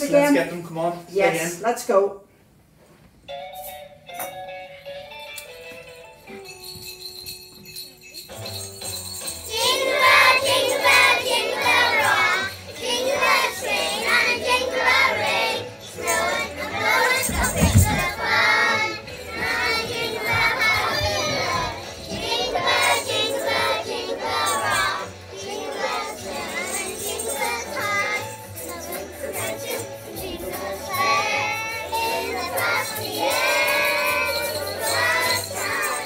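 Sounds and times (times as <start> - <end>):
children singing: 9.5 - 36.0
dull thump: 17.2 - 18.2.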